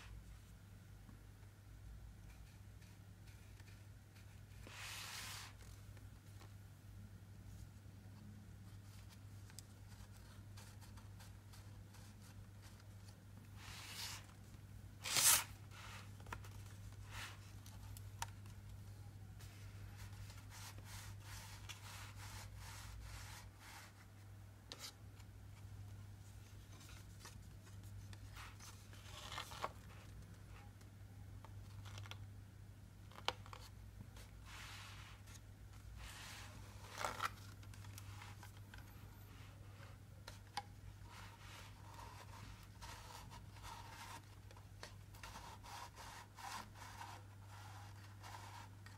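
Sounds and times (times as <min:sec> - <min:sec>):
faint low hum: 0:00.0 - 0:48.9
paper pages rustling and scraping: 0:15.0 - 0:18.5, 0:26.5 - 0:30.2, 0:36.0 - 0:39.5.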